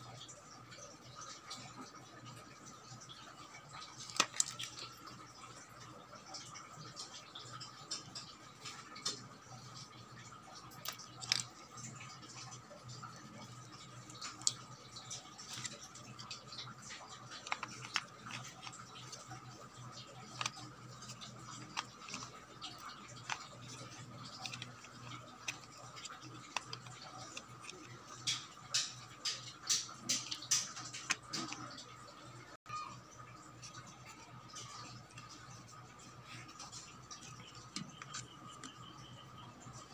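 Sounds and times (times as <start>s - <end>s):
faint steady hum: 0.0s - 39.9s
plastic clicks and taps: 20.2s - 31.8s.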